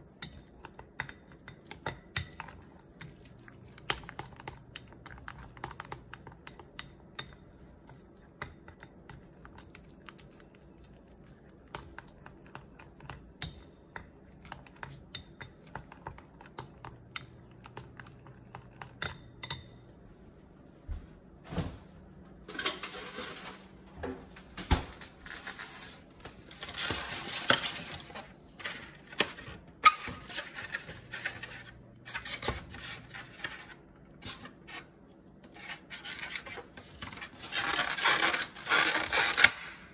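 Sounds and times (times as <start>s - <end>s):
chopsticks whisking batter in glass bowl: 0.0s - 19.8s
scraping and rustling with knocks: 22.5s - 39.6s.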